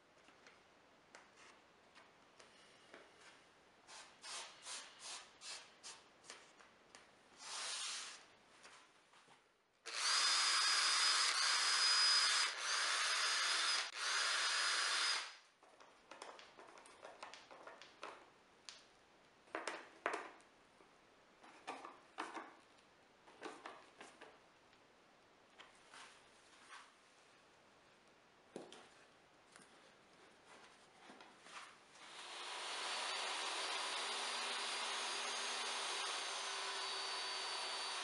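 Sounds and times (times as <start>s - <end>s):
cordless drill whining: 9.9s - 15.4s, 32.0s - 38.0s.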